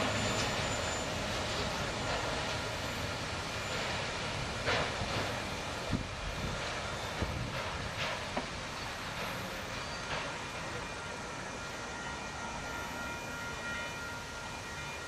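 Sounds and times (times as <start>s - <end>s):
wheels clicking on rail joints: 0.0s - 11.1s
freight train cars clattering: 0.0s - 15.0s.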